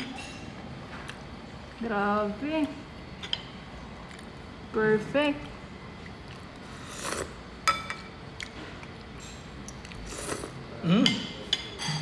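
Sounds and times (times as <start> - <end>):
slurping soup: 6.3 - 7.4
metal spoon clinking on dish: 11.0 - 12.0.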